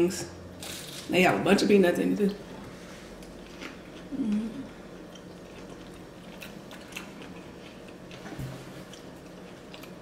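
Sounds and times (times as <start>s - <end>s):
people chewing crunchy food: 2.7s - 10.0s.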